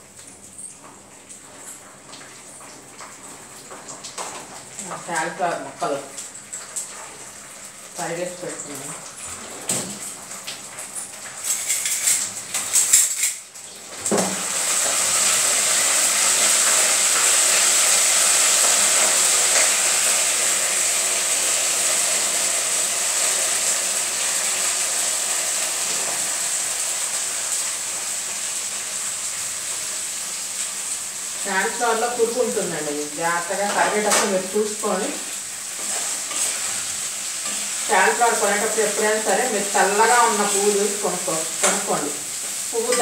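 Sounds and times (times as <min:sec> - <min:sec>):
vegetables sizzling in hot oil: 0:00.0 - 0:43.0
knocks and utensil clatter: 0:10.9 - 0:14.4.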